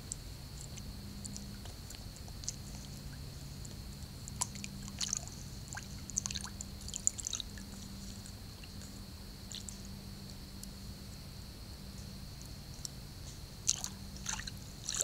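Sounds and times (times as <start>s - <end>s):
bird wading with small splashes: 0.6s - 9.9s, 13.2s - 15.0s.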